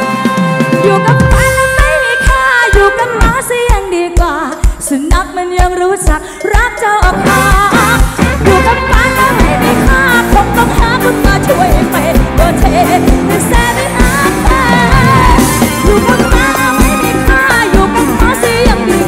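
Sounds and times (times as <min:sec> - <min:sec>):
live band playing: 0:00.0 - 0:19.0
person singing: 0:00.0 - 0:19.0.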